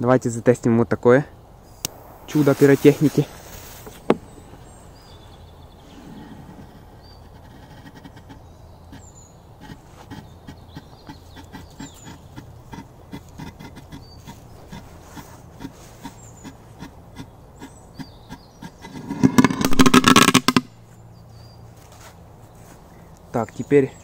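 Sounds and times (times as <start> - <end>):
firework crackling burst: 1.9 - 4.7
faint regular ticks: 6.6 - 18.8.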